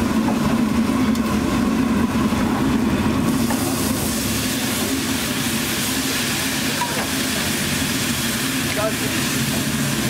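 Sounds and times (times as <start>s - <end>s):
liquid hissing on hot griddle: 3.3s - 10.0s.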